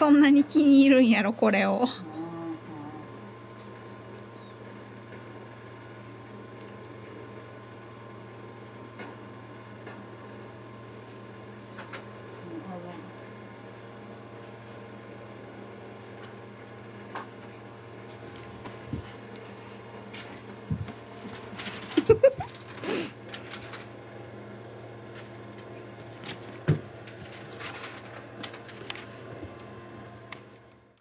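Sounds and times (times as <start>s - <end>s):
low room hum: 0.0s - 31.0s.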